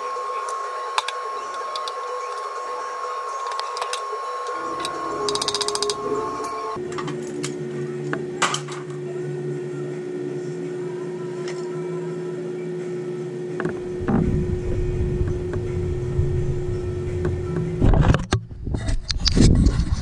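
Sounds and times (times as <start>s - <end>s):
steady machine hum: 0.0s - 6.9s, 9.1s - 18.2s
low rumbling noise: 13.8s - 18.8s.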